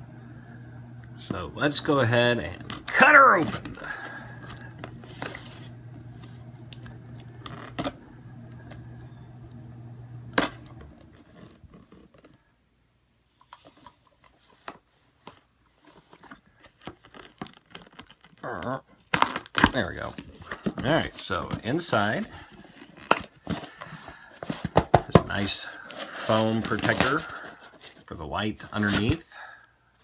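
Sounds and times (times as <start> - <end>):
steady low hum: 0.0 - 11.8.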